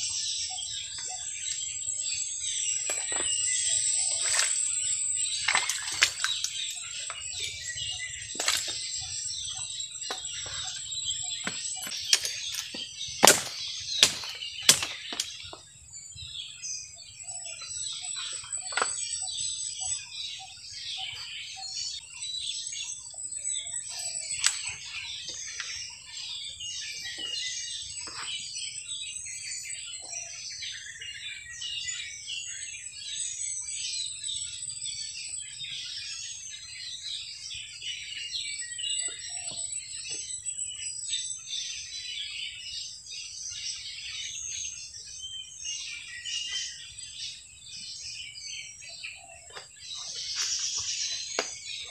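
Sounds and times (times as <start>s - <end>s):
birds chirping and twittering: 0.0s - 51.9s
loud sharp knocks: 11.4s - 15.3s.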